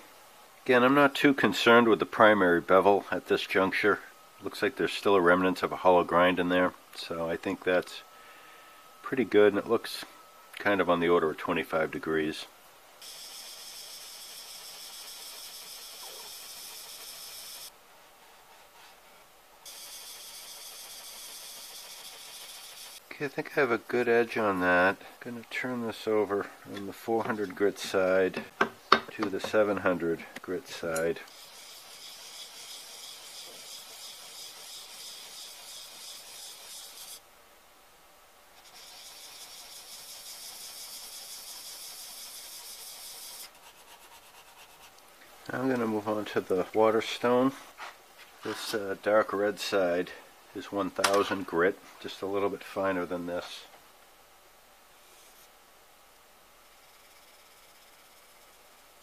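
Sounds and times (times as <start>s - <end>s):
plane iron scraping on sharpening plate: 30.8s - 37.2s.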